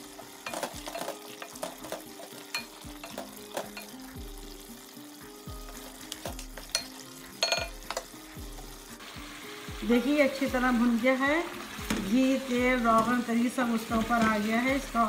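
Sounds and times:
meat sizzling in oil: 0.0 - 15.0.

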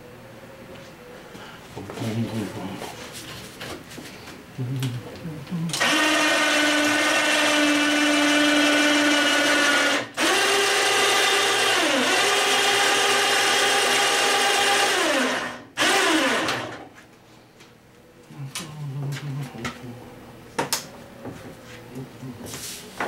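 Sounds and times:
power tool motor whining: 5.7 - 16.9.

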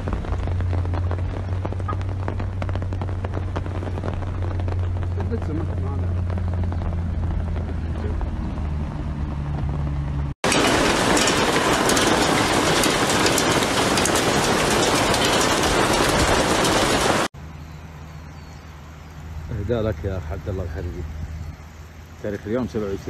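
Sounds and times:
hail and rain pelting down: 0.0 - 7.6, 10.4 - 17.3.

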